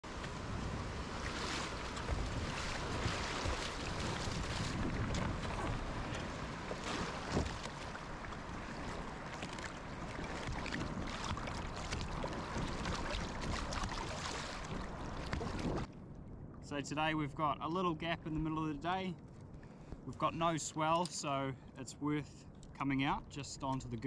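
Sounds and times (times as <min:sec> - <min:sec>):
paddle strokes splashing: 0:00.0 - 0:15.9
water sloshing against hull: 0:00.1 - 0:16.6.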